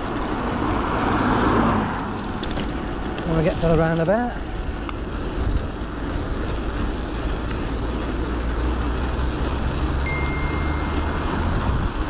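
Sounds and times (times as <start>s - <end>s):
wind and road noise: 0.0s - 12.0s
thin high whine: 10.1s - 11.6s.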